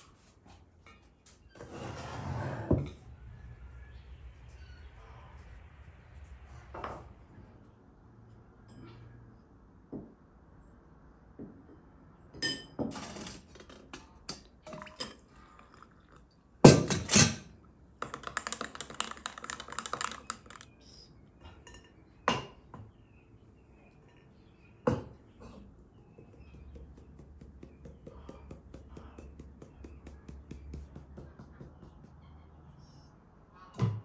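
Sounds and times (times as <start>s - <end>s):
spoon clinking in glass: 12.4s - 12.8s
kitchenware clatter: 12.4s - 15.3s, 16.6s - 17.5s
glass bowls knocking and clinking: 12.4s - 15.8s.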